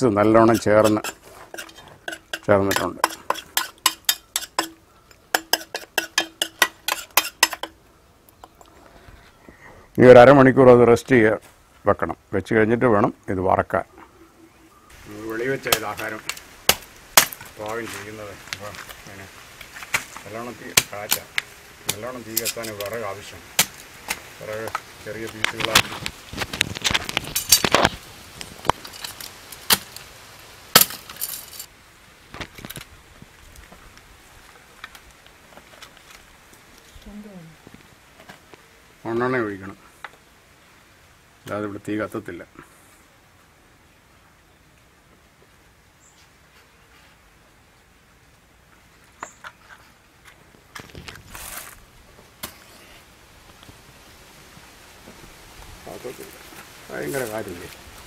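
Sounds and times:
wood splintering: 15.5s - 19.0s, 19.6s - 24.8s
machete chopping wood: 15.6s - 17.5s, 23.6s - 24.2s, 29.7s - 29.9s, 30.8s - 31.1s.

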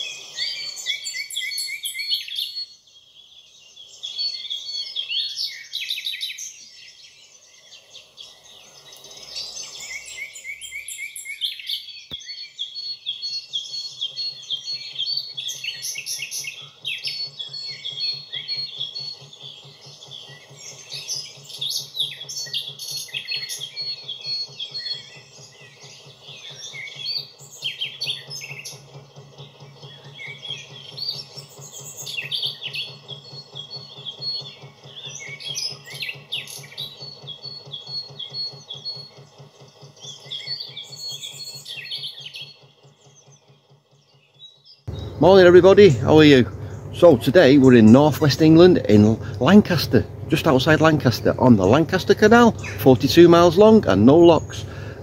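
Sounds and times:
boat diesel engine drone: 0.0s - 55.0s
songbirds chirping and singing: 0.0s - 55.0s.

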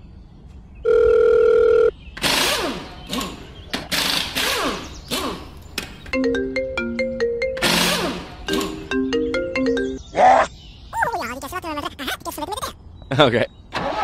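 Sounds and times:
chiming ringtone notes: 6.2s - 10.0s.

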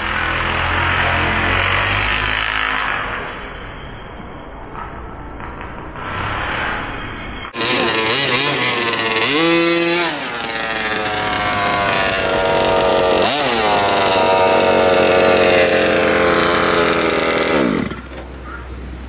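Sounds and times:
small two-stroke engine revving: 0.0s - 3.4s, 7.5s - 18.3s.

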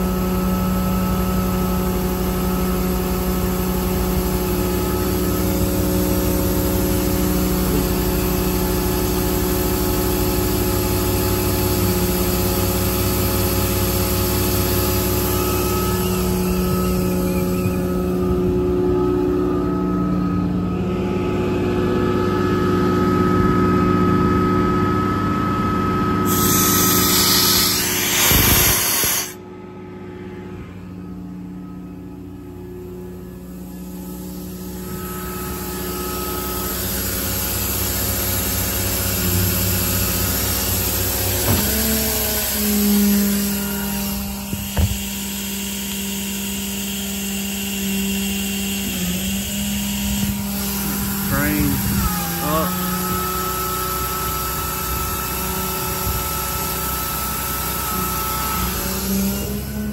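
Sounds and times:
engine running: 0.0s - 59.9s
thin high rising tone: 15.0s - 23.1s, 26.3s - 29.4s
loud rushing noise: 26.3s - 29.4s.

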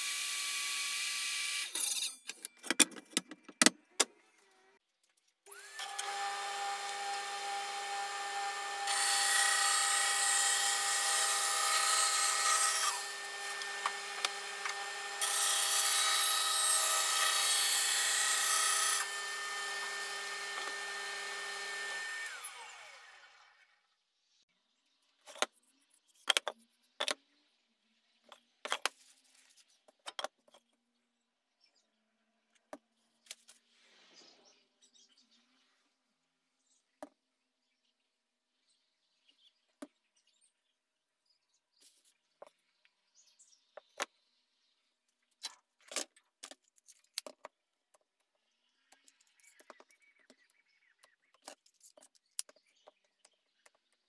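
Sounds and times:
bandsaw cutting wood: 5.5s - 23.6s.

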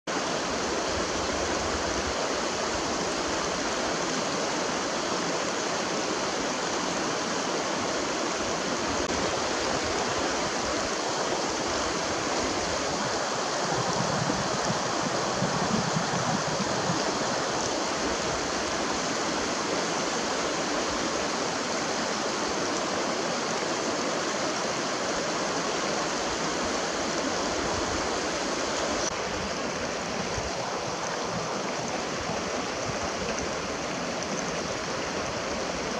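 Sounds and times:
mountain stream rushing over rocks: 0.1s - 35.9s.

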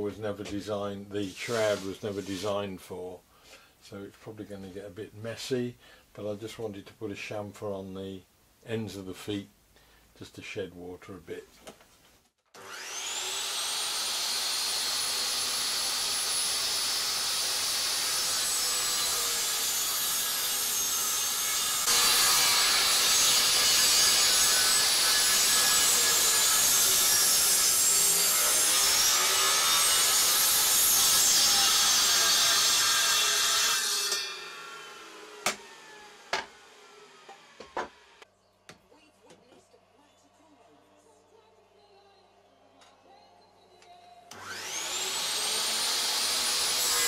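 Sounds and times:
mitre saw cutting wood: 1.2s - 2.7s, 12.5s - 38.2s, 44.3s - 47.0s.

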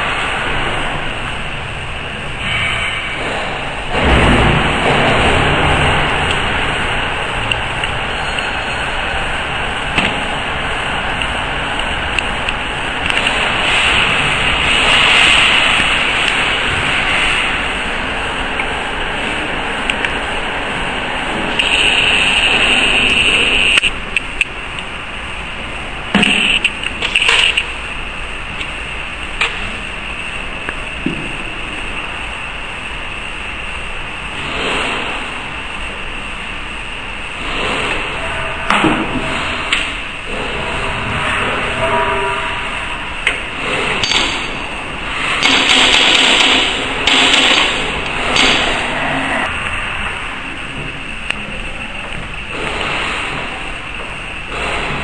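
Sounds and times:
steady background hiss: 0.0s - 55.0s.

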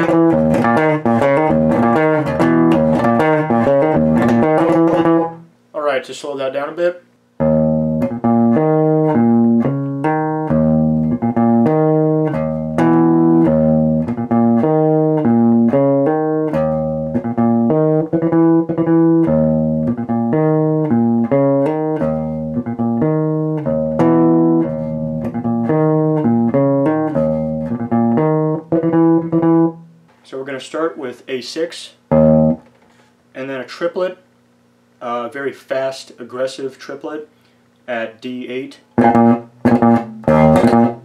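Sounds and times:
electric bass guitar riff: 0.0s - 5.5s, 7.4s - 30.1s, 32.1s - 32.7s, 39.0s - 41.0s.

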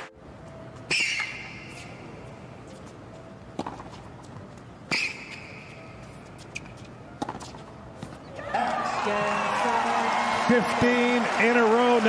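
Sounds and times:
tennis ball strikes: 3.5s - 4.1s, 6.4s - 8.2s
tennis ball bounce: 3.6s - 5.6s, 6.4s - 8.2s.

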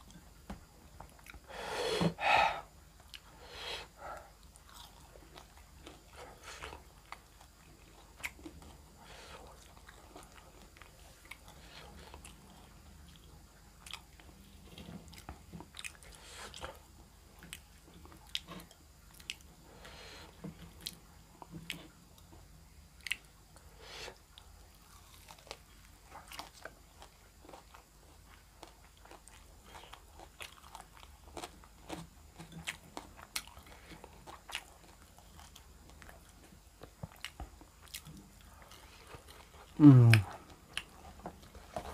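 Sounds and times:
chewing and crunching food: 0.0s - 2.2s, 2.8s - 41.9s
mouth clicks and smacks: 39.8s - 40.9s.

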